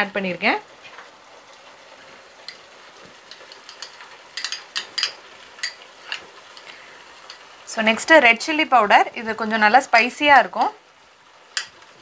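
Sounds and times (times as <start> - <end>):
thick sauce bubbling and popping: 0.8 - 7.7, 10.0 - 12.0.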